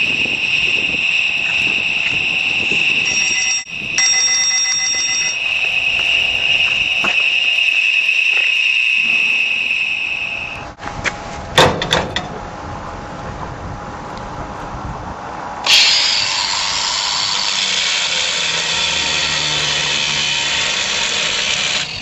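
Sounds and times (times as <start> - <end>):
high-pitched alarm tone: 0.0 - 10.8.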